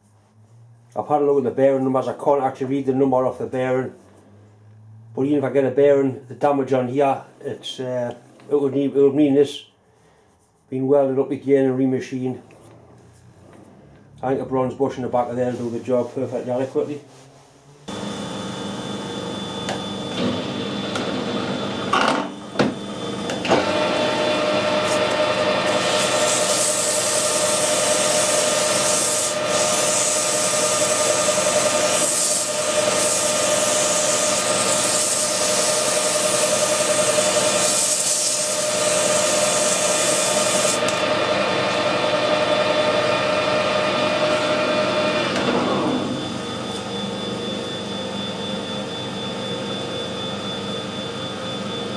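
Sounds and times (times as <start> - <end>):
metal lathe running: 17.9 - 45.2
file rasping on spinning steel: 23.6 - 40.9.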